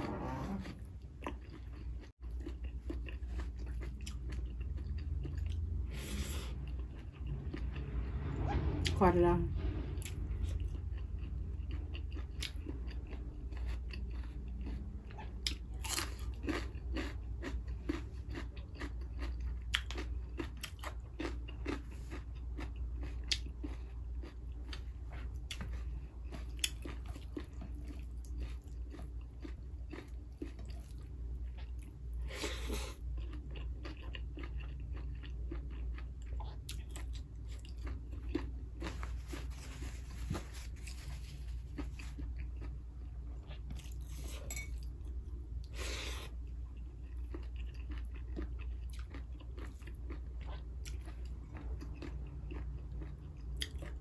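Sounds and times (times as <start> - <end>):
chewing and crunching food: 0.0 - 9.0, 9.6 - 54.0
low hum: 4.2 - 11.7.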